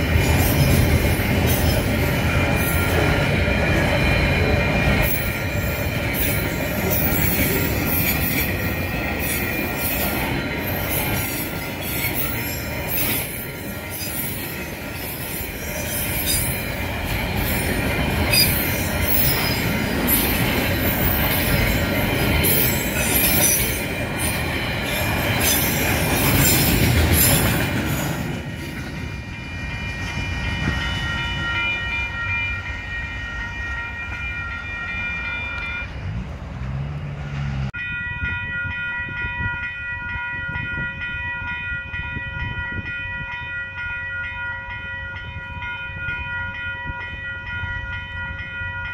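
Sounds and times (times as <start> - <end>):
freight wagons rolling on rails: 0.0 - 31.4
level crossing alarm bells: 29.2 - 36.0.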